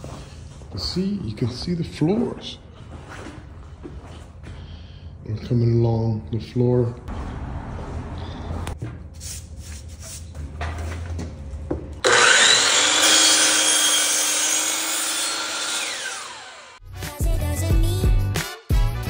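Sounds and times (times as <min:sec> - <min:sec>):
electric saw cutting flooring: 0:12.0 - 0:16.8.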